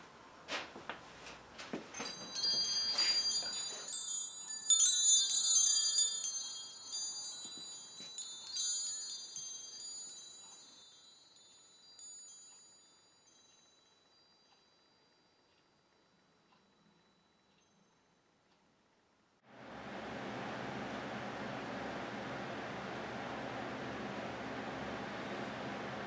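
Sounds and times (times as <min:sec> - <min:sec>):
wind chimes ringing: 0:01.9 - 0:14.9.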